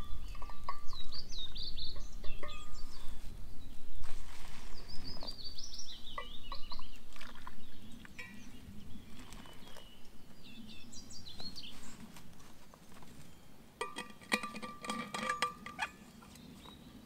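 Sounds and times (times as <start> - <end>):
songbirds singing and chirping: 0.0 - 17.0.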